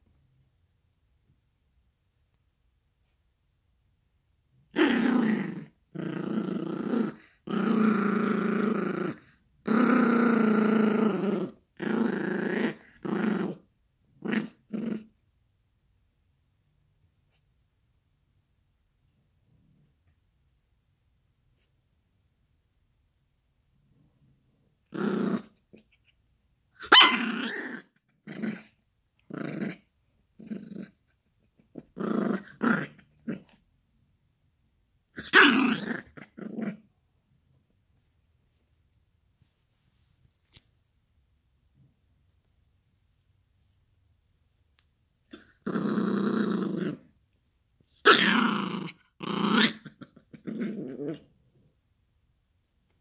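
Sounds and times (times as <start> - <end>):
puppy play-growling: 4.8 - 15.2, 24.8 - 26.2, 26.8 - 33.6, 35.2 - 37.0, 45.2 - 47.2, 47.8 - 51.8.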